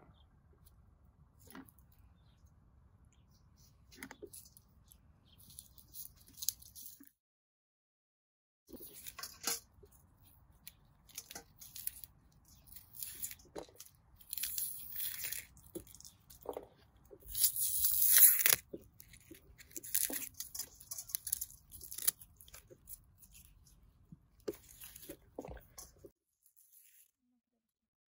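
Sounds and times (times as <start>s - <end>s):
rustling and tearing: 3.6s - 7.1s, 8.7s - 27.1s.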